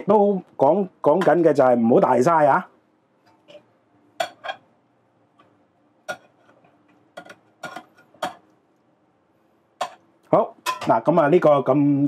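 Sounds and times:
utensils clinking against dishware: 7.2 - 8.4.

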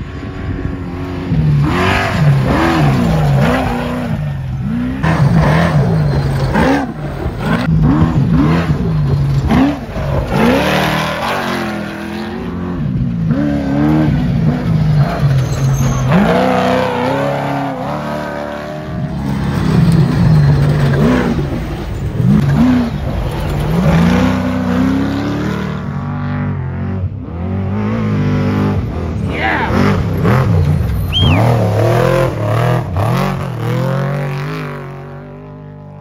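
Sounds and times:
truck engines revving: 0.0 - 36.0.

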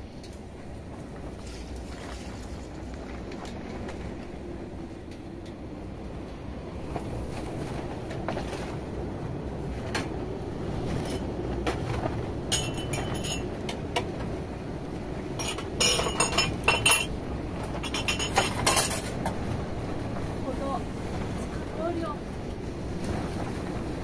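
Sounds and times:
storm wind rumbling: 0.0 - 24.0
clinking and rattling: 12.5 - 13.6, 15.4 - 19.2.

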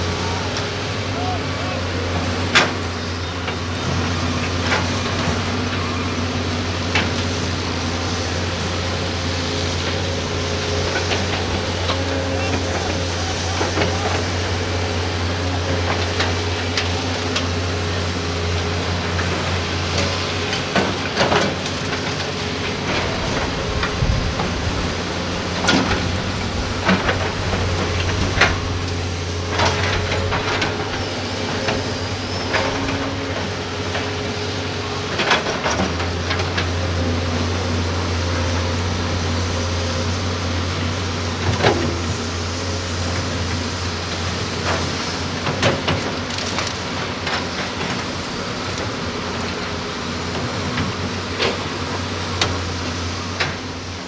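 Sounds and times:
excavator diesel engine drone: 0.0 - 54.0.

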